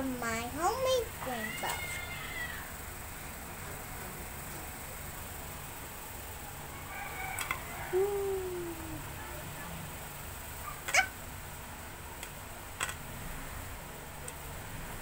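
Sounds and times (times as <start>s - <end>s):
cat meowing: 1.3s - 2.7s.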